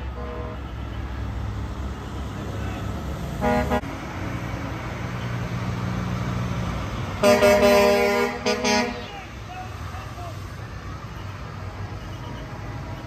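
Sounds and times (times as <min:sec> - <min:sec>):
truck engine rumbling: 0:00.0 - 0:13.0
loud truck horn blast: 0:00.1 - 0:00.7, 0:03.4 - 0:03.9, 0:07.2 - 0:09.3.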